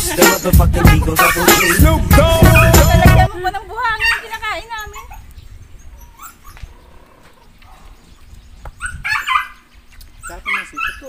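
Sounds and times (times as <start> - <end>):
dog barking: 8.8 - 9.6, 10.3 - 11.0.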